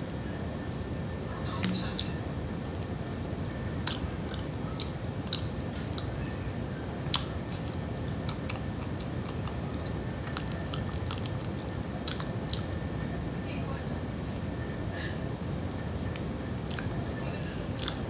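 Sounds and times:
low background noise: 0.0 - 18.0
person chewing: 3.8 - 6.2, 7.1 - 12.7, 16.6 - 17.0, 17.7 - 18.0.

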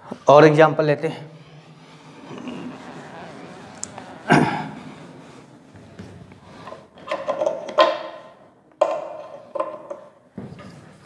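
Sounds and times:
duster rubbing whiteboard: 0.0 - 8.4.

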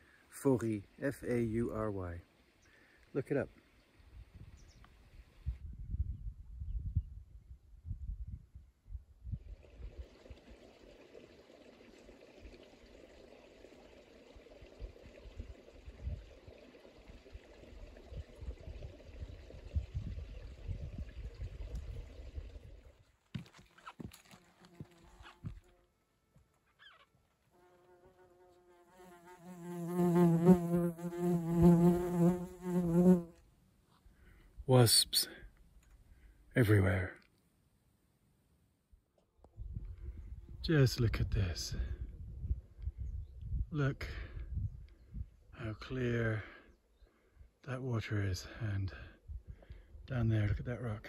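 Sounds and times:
wasp buzzing: 24.4 - 25.8, 27.6 - 33.4.

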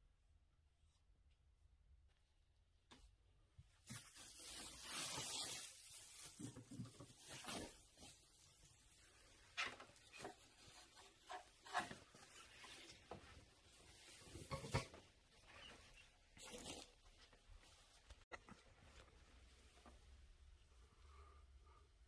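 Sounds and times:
plastic and bubble wrap crinkling: 3.8 - 18.2.

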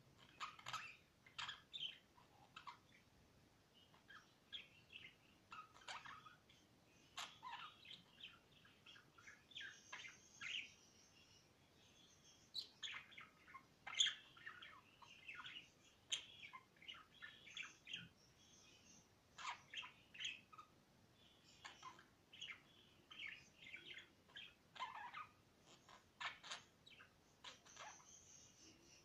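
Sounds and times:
budgerigars chirping: 0.2 - 3.1, 3.8 - 29.0.

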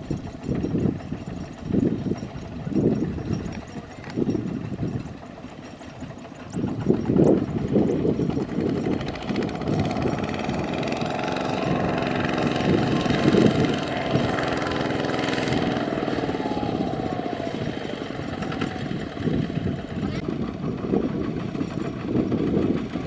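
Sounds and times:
diesel engine under load: 0.0 - 23.0.

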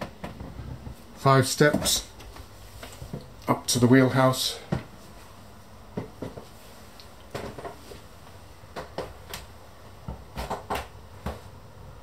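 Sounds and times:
room background: 0.0 - 12.0
soft footstep thumps: 4.7 - 11.5.

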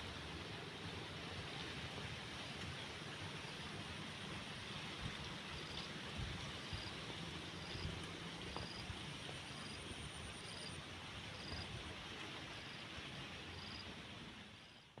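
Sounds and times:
steady hiss and low rumble: 0.0 - 15.0
insect chirping: 13.5 - 13.8.

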